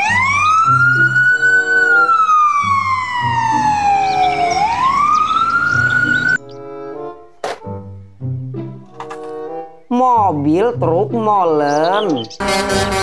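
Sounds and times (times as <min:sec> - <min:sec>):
ambulance siren wailing: 0:00.0 - 0:06.5.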